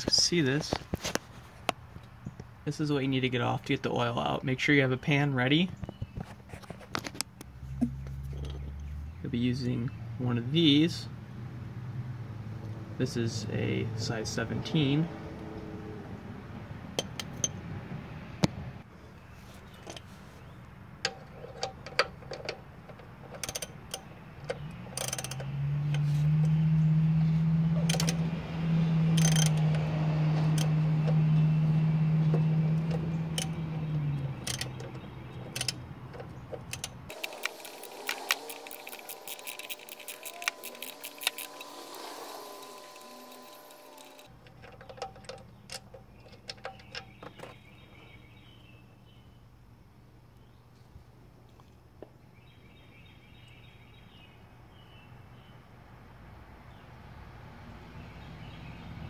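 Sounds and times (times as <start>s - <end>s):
socket ratchet clicking: 21.5s - 26.0s, 27.8s - 28.3s, 29.0s - 29.9s, 32.3s - 47.2s
loud steady low hum: 37.1s - 44.3s.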